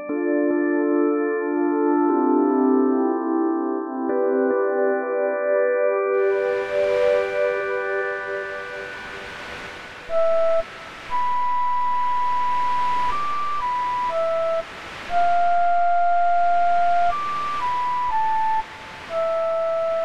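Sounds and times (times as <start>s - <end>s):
slow flute-like melody: 6.2s - 20.0s.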